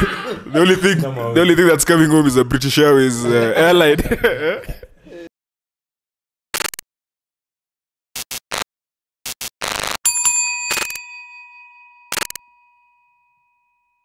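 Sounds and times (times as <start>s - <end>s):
glitchy static crackles: 6.5s - 6.8s, 8.2s - 10.1s
bright bell-like ding: 10.1s - 14.0s.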